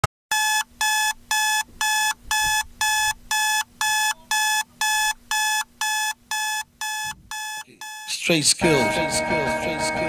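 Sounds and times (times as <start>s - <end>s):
smartphone alarm beeping: 0.3s - 8.2s.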